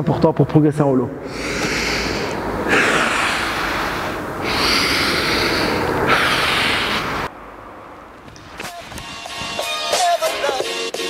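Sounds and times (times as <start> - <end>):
man breathing hard: 1.2 - 7.3.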